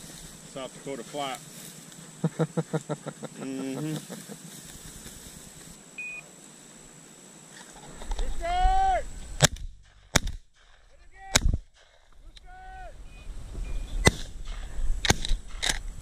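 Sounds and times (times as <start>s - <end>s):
shotgun shots: 9.4s - 12.1s, 14.0s - 15.8s.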